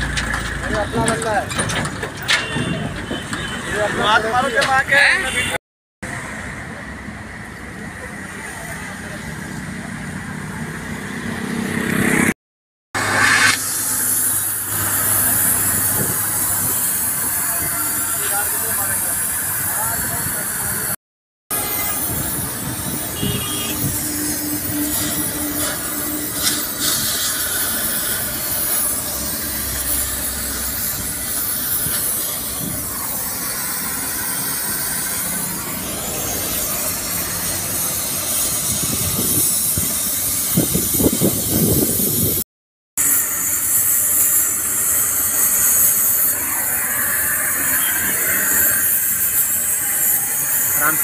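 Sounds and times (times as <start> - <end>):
gas cutting torch hissing: 13.0 - 42.4, 43.0 - 51.0.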